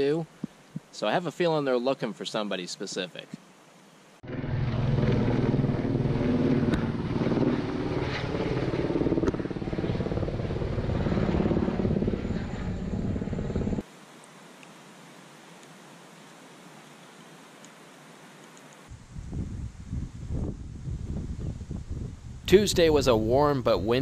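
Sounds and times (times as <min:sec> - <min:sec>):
helicopter rotor beating: 0:04.2 - 0:13.8.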